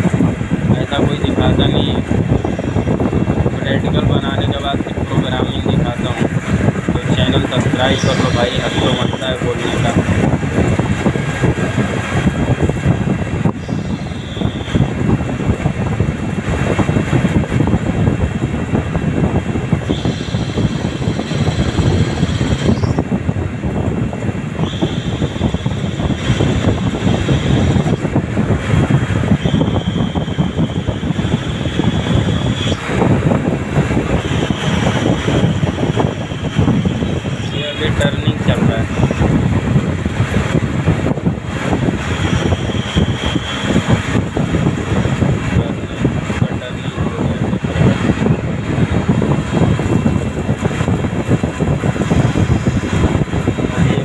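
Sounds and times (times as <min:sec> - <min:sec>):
lathe running and cutting: 0:00.0 - 0:14.9, 0:24.6 - 0:39.6, 0:40.2 - 0:54.0
coolant splashing: 0:00.0 - 0:54.0
thin high whine: 0:00.8 - 0:10.4, 0:11.2 - 0:15.5, 0:19.7 - 0:23.1, 0:24.5 - 0:39.5, 0:40.5 - 0:54.0.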